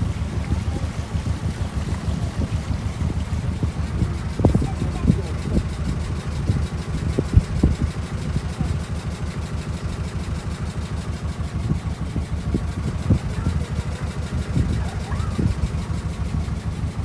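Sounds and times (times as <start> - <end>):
boat motor running: 0.0 - 17.0.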